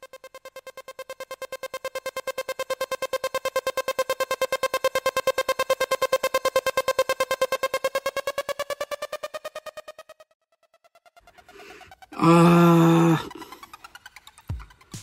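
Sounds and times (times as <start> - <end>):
pulsing synthesizer tone: 0.0 - 14.5.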